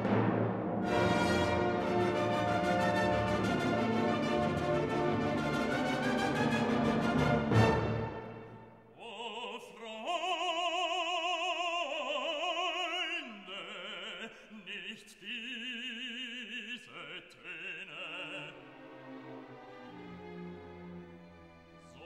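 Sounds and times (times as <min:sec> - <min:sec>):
operatic solo voice singing: 0:08.9 - 0:18.8.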